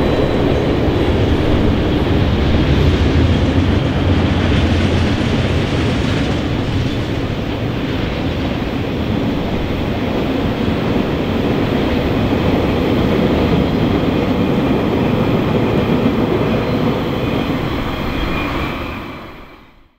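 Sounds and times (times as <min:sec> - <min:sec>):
freight train wagons rumbling: 0:00.0 - 0:19.6.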